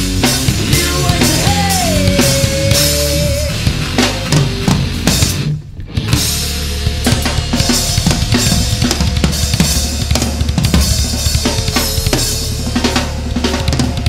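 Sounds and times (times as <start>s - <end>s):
drum kit: 0.0s - 14.0s
low bass notes: 0.0s - 14.0s
wavering guitar-like tone: 0.7s - 6.4s.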